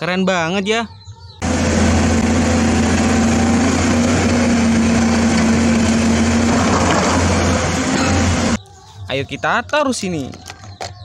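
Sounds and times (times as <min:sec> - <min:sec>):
bulldozer diesel engine running: 0:01.4 - 0:08.6.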